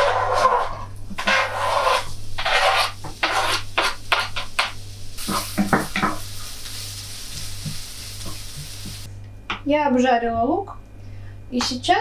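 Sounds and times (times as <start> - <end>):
spatula scraping a pan: 0.0 - 6.3
onions sizzling in a pan: 1.2 - 9.1.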